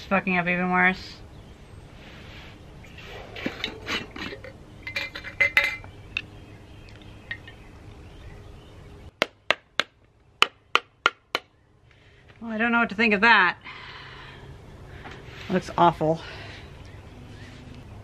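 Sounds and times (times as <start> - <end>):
glass jar clinking: 3.4 - 5.9.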